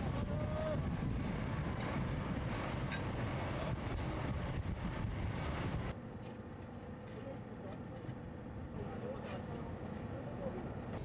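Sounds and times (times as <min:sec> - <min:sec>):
wind buffeting microphone: 0:00.0 - 0:06.0
low outdoor rumble: 0:00.0 - 0:11.0.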